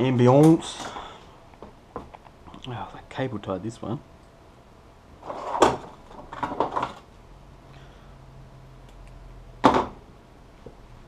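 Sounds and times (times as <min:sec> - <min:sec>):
faint low hum: 0:00.0 - 0:11.0
objects knocking on workbench: 0:09.6 - 0:10.0.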